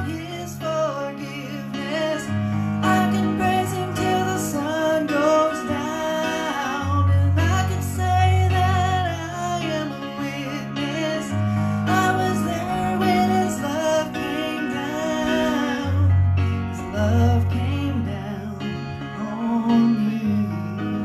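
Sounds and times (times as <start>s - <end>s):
electronic keyboard chords: 0.0s - 21.0s.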